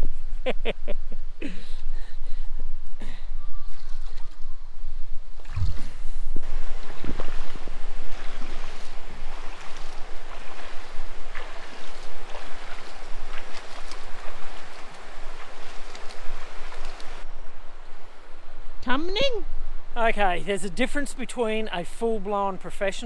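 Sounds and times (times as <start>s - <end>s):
water splashing from wading legs: 5.4s - 17.2s.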